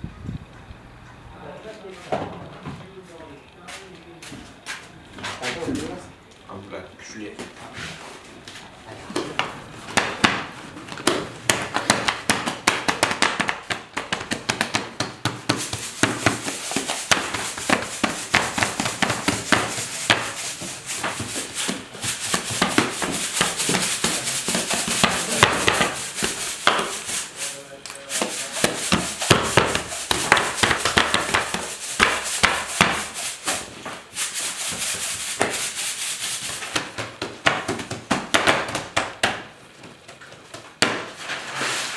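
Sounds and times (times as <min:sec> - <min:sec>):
steady hiss: 0:01.3 - 0:39.6
dough knocking and slapping: 0:09.0 - 0:27.4, 0:28.0 - 0:41.4.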